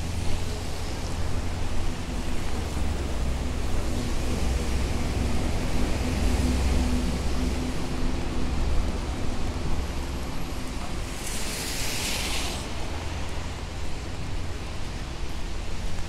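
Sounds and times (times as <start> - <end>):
traffic rumble on wet road: 0.0 - 16.0.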